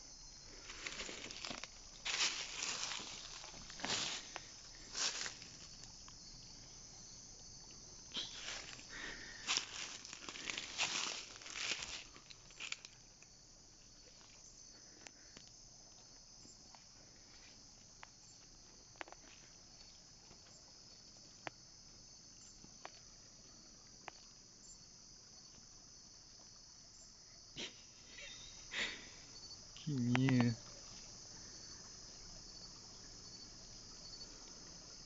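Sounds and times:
night insects chorus: 0.0 - 35.0.

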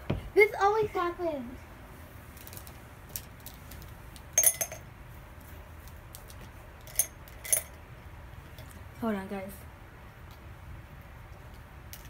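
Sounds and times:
small hard objects clinking: 2.4 - 4.9.

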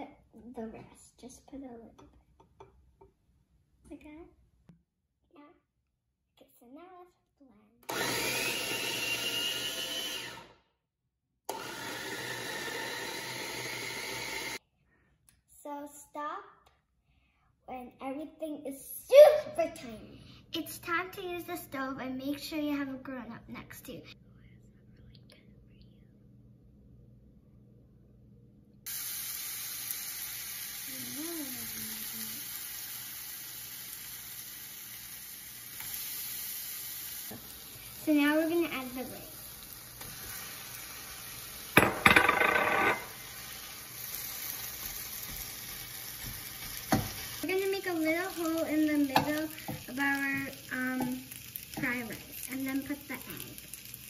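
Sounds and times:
electric food chopper motor: 7.8 - 10.6, 11.5 - 14.6
vegetables sizzling in oil: 28.9 - 41.9, 42.8 - 54.0.

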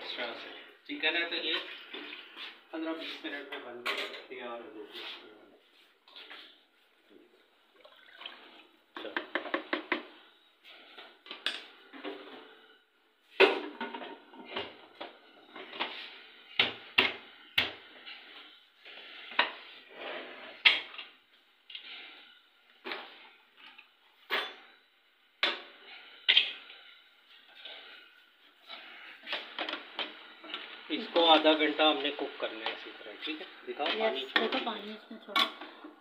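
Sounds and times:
wooden spoon knocking on pot: 9.0 - 10.1.

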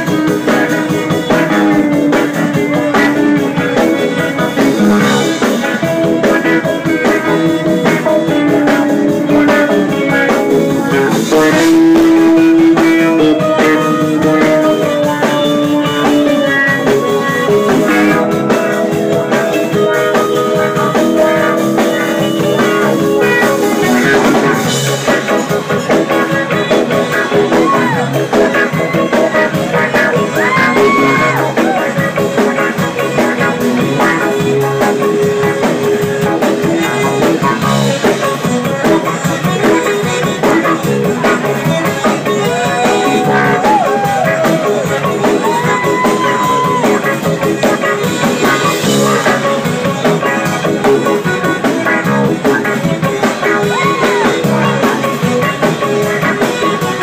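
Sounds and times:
bass: 0.0 - 57.0
drums: 0.0 - 57.0
electric guitar: 0.0 - 57.0
keyboard: 0.0 - 57.0.

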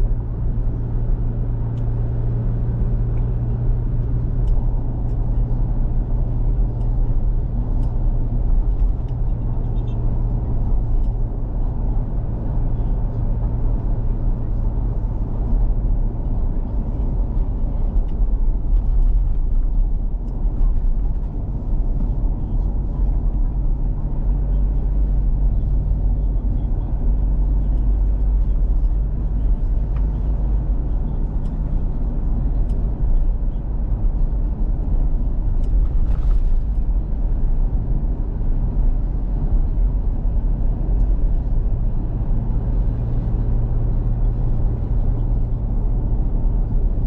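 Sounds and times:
car engine and road rumble: 0.0 - 47.0.

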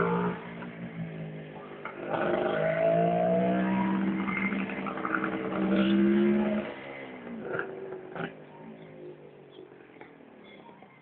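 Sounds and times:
motorcycle engine accelerating: 0.0 - 8.5.

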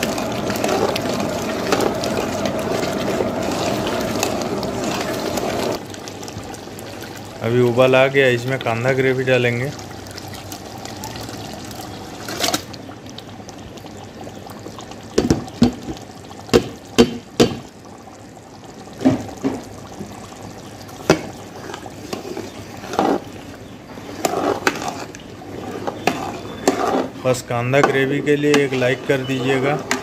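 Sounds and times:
metal ladle stirring: 0.0 - 5.8, 24.0 - 25.2, 25.8 - 27.2
gravy pouring into pot: 0.0 - 17.0.

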